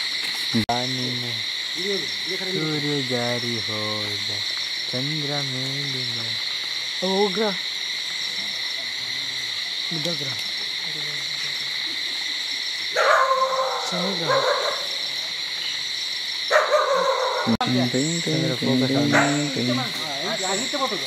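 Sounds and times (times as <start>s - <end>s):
insects chirping: 0.0s - 21.0s
low wavering hoots: 10.7s - 15.9s, 16.5s - 20.6s
harsh animal call: 16.5s - 20.1s.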